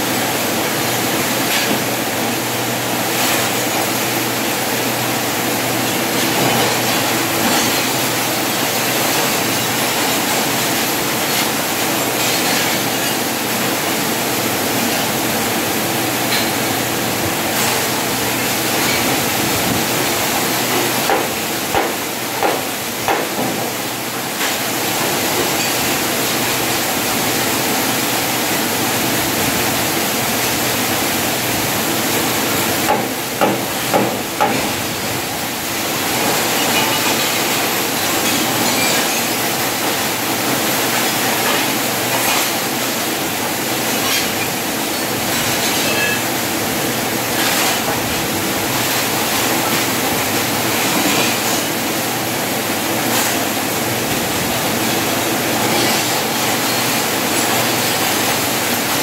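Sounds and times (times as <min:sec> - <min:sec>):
sharp knocks on metal: 0:21.1 - 0:23.6, 0:32.9 - 0:34.7.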